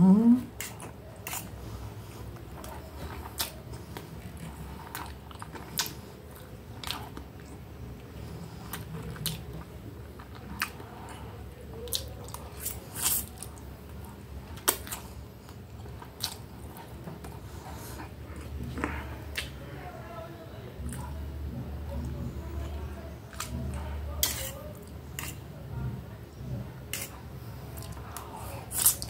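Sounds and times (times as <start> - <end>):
low steady hum: 0.0 - 29.0
person chewing: 0.5 - 19.6, 26.8 - 29.0.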